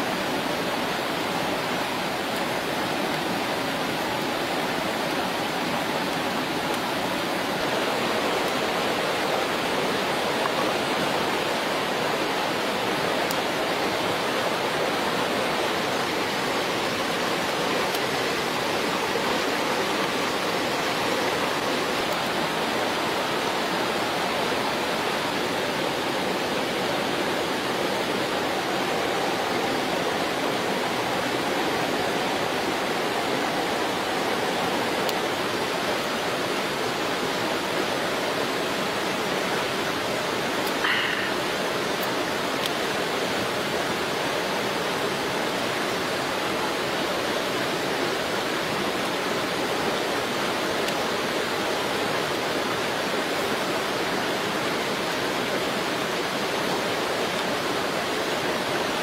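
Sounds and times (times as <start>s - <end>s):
steady rushing noise: 0.0s - 38.4s.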